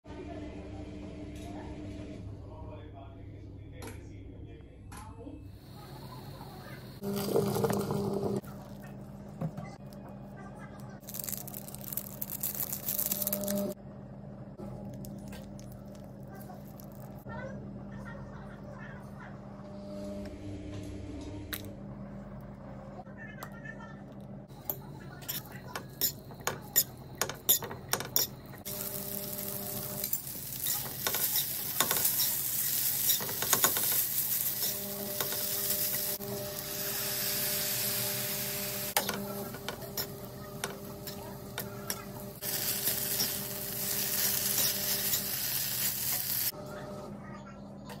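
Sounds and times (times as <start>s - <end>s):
noodles sizzling in pan: 5.6s - 8.7s, 25.3s - 46.5s
utensil clacking against pan: 24.6s - 28.5s, 33.0s - 34.0s.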